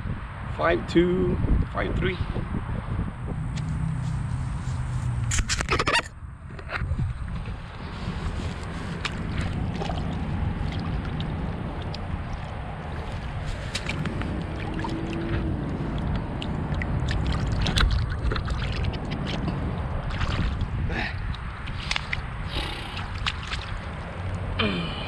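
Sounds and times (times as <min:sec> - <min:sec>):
wind on microphone: 0:00.0 - 0:24.6
shallow water splashing: 0:07.3 - 0:24.5.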